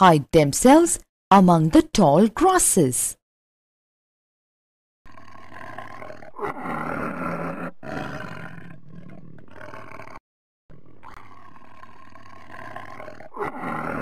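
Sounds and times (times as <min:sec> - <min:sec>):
lion roaring: 0:05.1 - 0:14.0.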